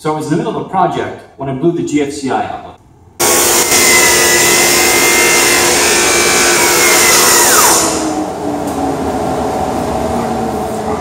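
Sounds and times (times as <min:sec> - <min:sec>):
table saw whine: 0:03.2 - 0:08.6
motors winding down: 0:03.2 - 0:09.0
dust collector hum: 0:03.2 - 0:11.0.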